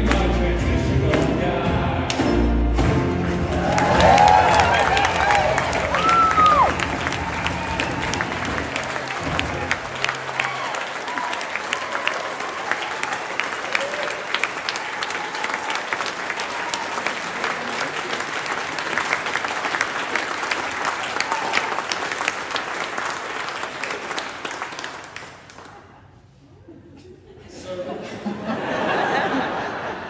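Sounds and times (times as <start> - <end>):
audience applauding: 3.1 - 25.9.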